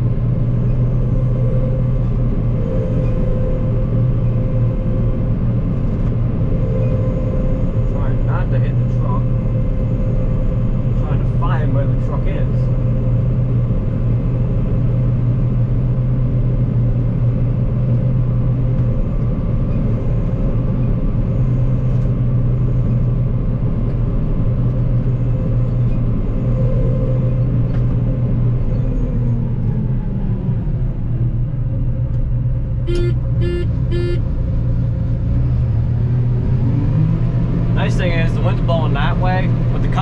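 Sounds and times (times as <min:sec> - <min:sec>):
combine harvester droning: 0:00.0 - 0:40.0
short electronic beeps: 0:32.9 - 0:34.2.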